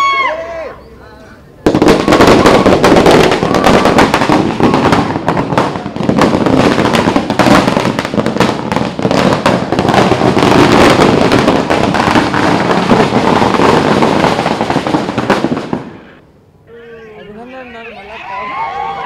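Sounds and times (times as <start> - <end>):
firecrackers crackling: 1.5 - 16.3.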